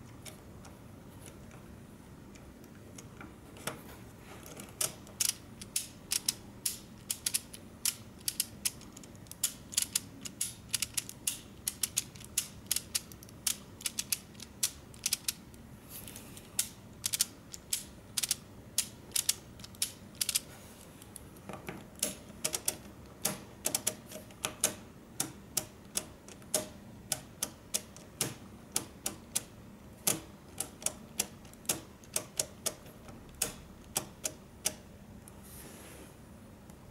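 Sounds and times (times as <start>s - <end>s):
plastic gears clicking: 4.7s - 15.4s, 16.6s - 20.4s.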